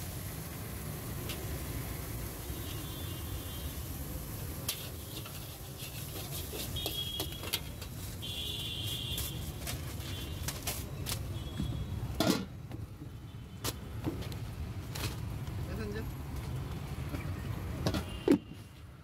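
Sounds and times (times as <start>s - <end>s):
metal spatula scraping a wok: 4.6s - 10.3s.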